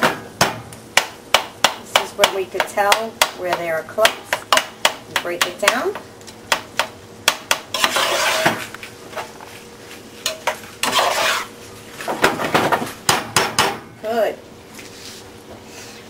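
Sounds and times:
spoon scraping a pan: 7.7 - 8.7, 10.2 - 11.6
metal spoon clanking on a pan: 10.3 - 11.2.

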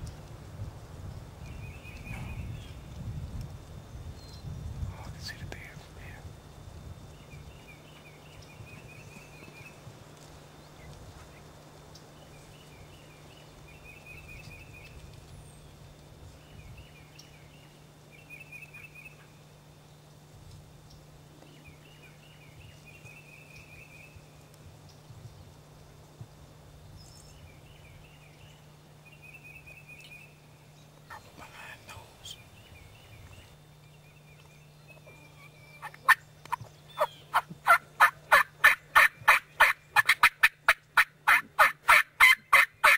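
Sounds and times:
faint low hum: 0.0 - 42.9
songbird trilling: 31.1 - 40.3
wild turkey calling: 34.4 - 42.9.

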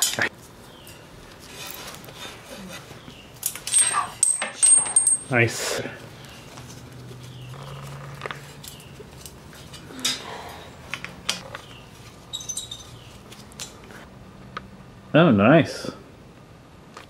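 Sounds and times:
blade squeaking on metal: 12.3 - 13.1.

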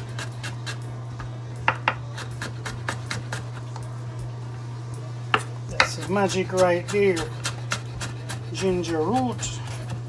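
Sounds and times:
steady low hum: 0.0 - 10.0
knife chopping on wooden board: 5.4 - 10.0.

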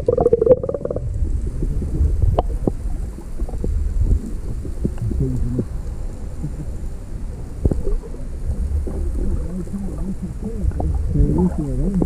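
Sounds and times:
muffled underwater water noise: 0.0 - 12.0
muffled person's voice: 5.0 - 5.7, 7.7 - 12.0.

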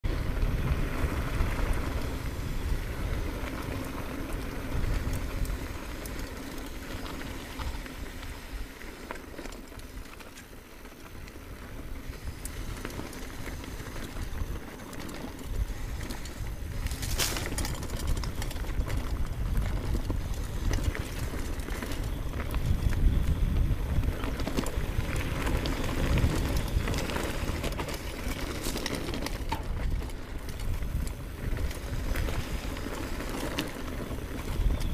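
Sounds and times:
bike tyres rumbling on gravel: 0.0 - 34.9
stones and bike rattling: 0.0 - 34.9.

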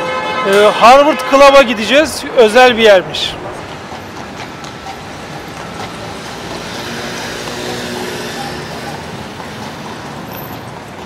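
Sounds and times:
vehicle traffic noise: 0.0 - 11.0
vehicle engine passing: 4.7 - 11.0.

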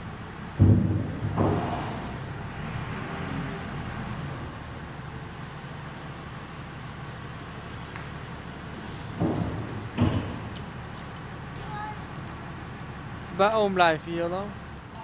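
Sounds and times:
diesel engine rumble: 0.0 - 15.0
heavy knocks: 0.6 - 2.2, 9.1 - 10.5.

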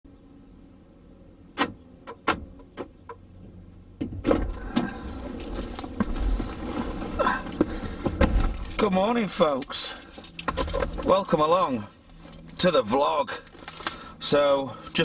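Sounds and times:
car door opening: 4.0 - 8.9.

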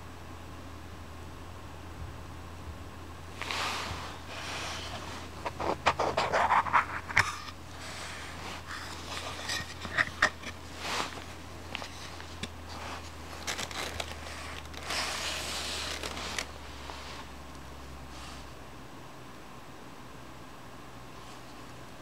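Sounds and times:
low steady hum: 0.0 - 22.0
soft rustling: 3.3 - 17.4
wooden knocks and scrapes: 8.3 - 13.1.

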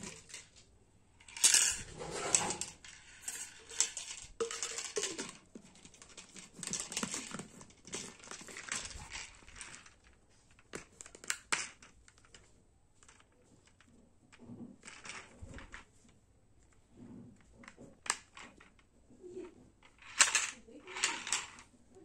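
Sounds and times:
plastic shaker bottle handling: 3.3 - 10.6.

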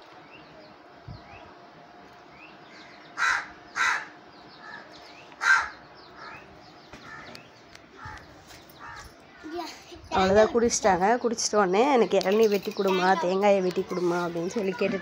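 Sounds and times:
crows cawing: 2.7 - 9.5.

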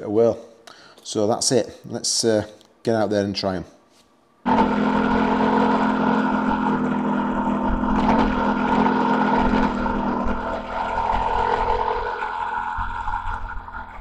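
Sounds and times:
motorcycle engine running: 4.5 - 14.0
wind and road noise: 4.5 - 14.0.

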